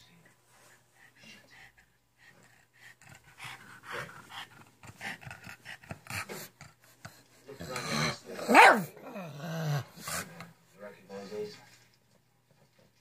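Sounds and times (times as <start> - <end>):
small dog panting: 0.5 - 7.9.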